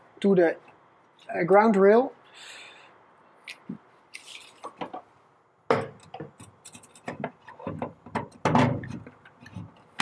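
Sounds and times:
clicks and rubbing: 6.0 - 10.0.

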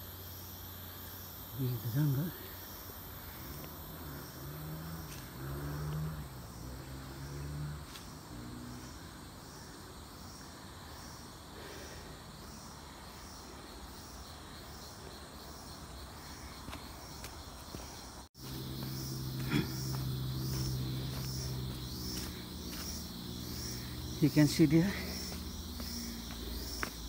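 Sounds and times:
insects calling in pulses: 0.0 - 27.0.

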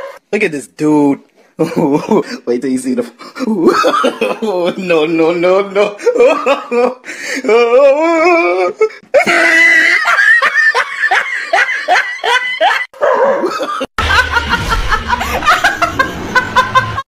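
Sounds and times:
person laughing hard: 3.4 - 4.7, 5.8 - 17.0
woman laughing loudly: 9.2 - 17.0.

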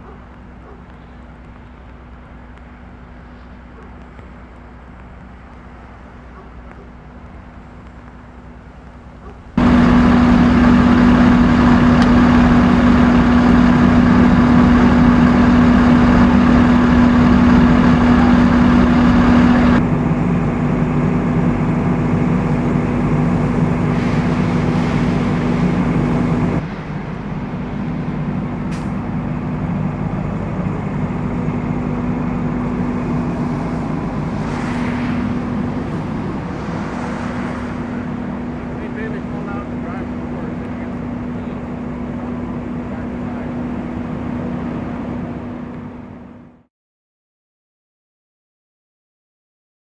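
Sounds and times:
diesel engines idling: 0.0 - 46.6
heavy rain hissing: 9.6 - 19.8, 22.4 - 43.6.

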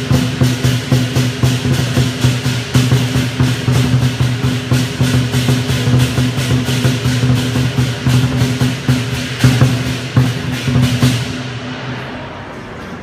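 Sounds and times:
large drum beating fast rhythm: 0.0 - 11.8
crashing cymbals: 0.0 - 13.0
crowd murmur: 7.2 - 13.0.

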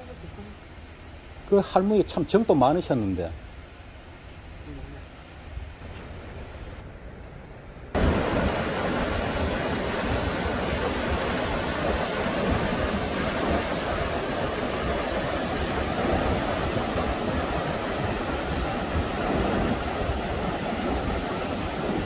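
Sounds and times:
stream rushing over boulders: 8.0 - 22.0.

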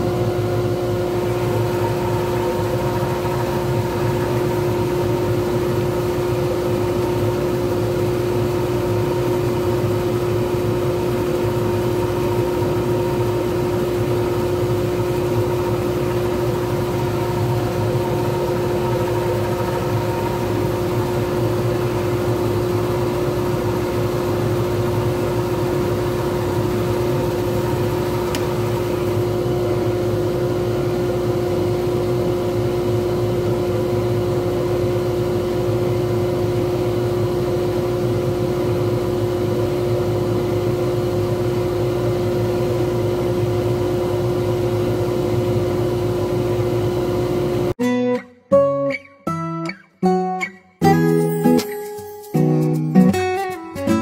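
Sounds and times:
wood lathe motor humming: 0.0 - 31.7.

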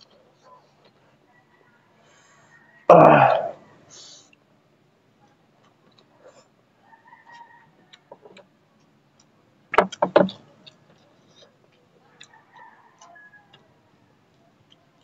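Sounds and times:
chewing with wet mouth clicks: 5.3 - 6.2, 7.2 - 15.0.

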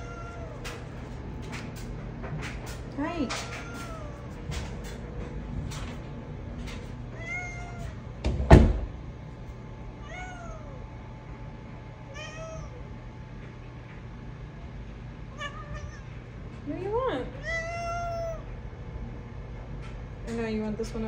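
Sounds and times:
cat meowing: 0.0 - 0.8, 3.1 - 4.5, 7.1 - 8.0, 10.0 - 10.8, 12.1 - 12.9, 15.3 - 16.2, 17.4 - 18.5
loud thump: 8.2 - 8.9.

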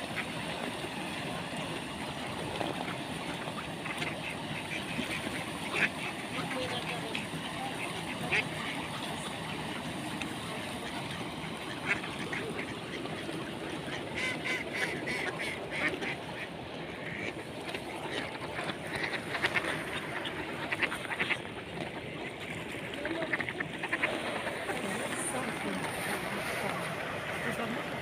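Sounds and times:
ducks quacking: 0.0 - 28.0.

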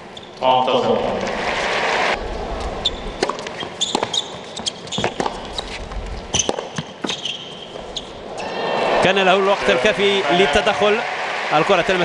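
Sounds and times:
shoes squeaking on court: 0.1 - 0.4, 2.8 - 8.3
tennis ball being struck and bouncing: 3.2 - 7.2.

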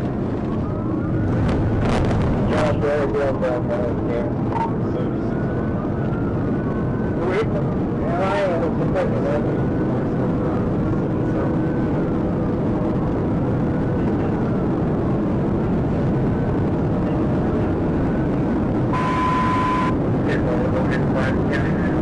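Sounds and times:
faint siren wailing: 0.0 - 10.7, 16.2 - 20.4
road wind and engine noise: 0.0 - 22.0.

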